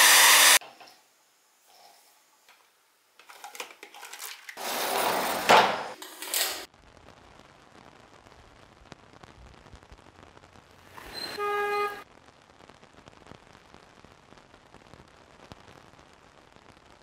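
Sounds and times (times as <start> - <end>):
faint steady hiss: 0.6 - 4.6.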